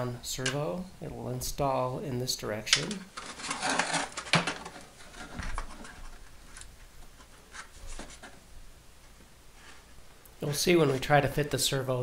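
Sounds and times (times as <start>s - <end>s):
model airplane handling rustling: 2.9s - 8.4s.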